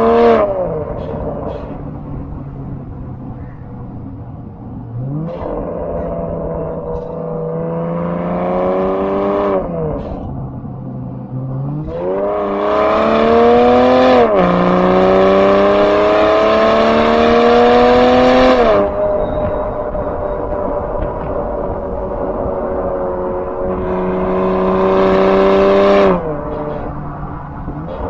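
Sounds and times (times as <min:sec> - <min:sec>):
car exhaust accelerating: 0:00.0 - 0:28.0.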